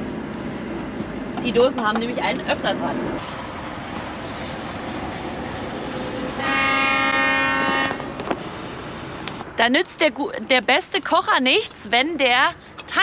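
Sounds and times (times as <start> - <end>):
horn blast: 6.4 - 8.2.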